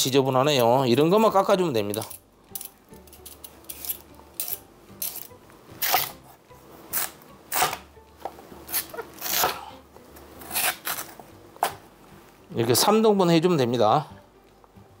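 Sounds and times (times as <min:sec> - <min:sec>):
peeler scraping radish skin: 0:01.9 - 0:06.2, 0:06.9 - 0:07.9, 0:08.7 - 0:09.6, 0:10.4 - 0:11.2
knife cutting on wooden board: 0:08.7 - 0:09.6.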